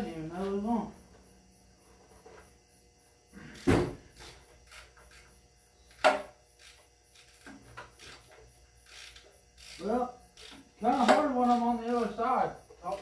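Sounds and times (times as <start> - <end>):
loud knocks on engine: 3.7 - 4.0.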